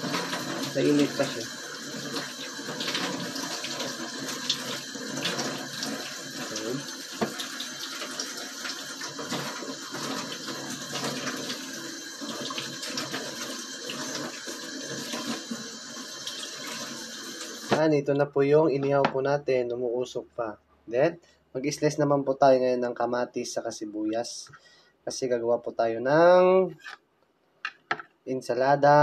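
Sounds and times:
tap running into steel sink: 7.2s - 7.5s.

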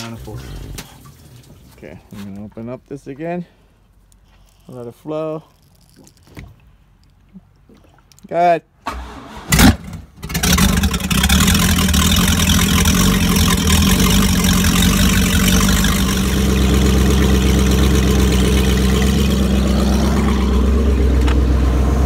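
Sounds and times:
boat engine idling: 10.2s - 22.0s.

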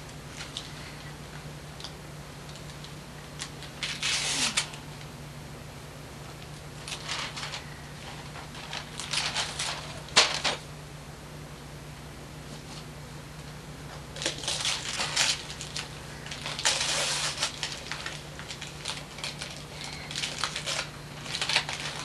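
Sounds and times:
faint low hum: 0.0s - 22.0s
wrapping paper tearing and crinkling: 3.4s - 4.8s, 6.8s - 10.6s, 14.1s - 22.0s.

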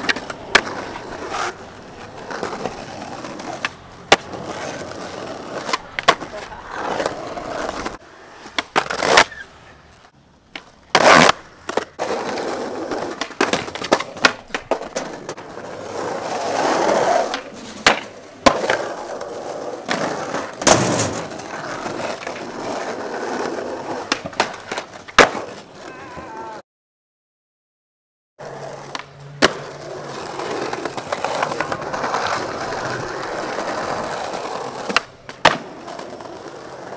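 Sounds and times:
skateboard tail pops and landings: 0.0s - 1.6s, 2.3s - 6.4s, 10.5s - 19.0s, 19.8s - 25.6s, 28.9s - 36.9s
skateboard wheels rolling on asphalt: 0.0s - 26.6s, 28.4s - 36.9s.

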